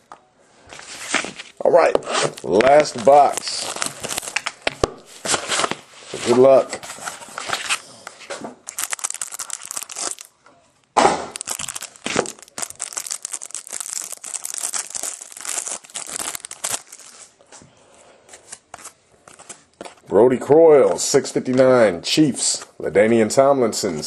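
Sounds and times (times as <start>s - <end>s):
plastic wrapper crinkling and tearing: 2.0s - 5.8s, 8.6s - 10.3s, 11.3s - 17.4s.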